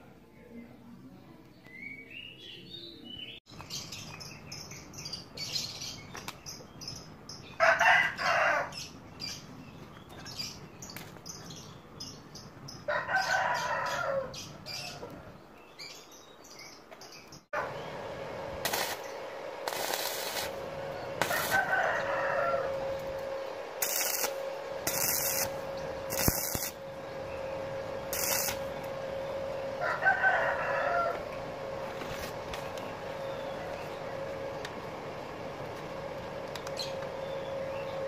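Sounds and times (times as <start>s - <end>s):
roosters crowing: 7.4s - 9.0s, 12.8s - 15.5s, 17.6s - 34.6s
welder arc humming: 17.6s - 38.0s
welding arc crackling: 18.6s - 29.0s.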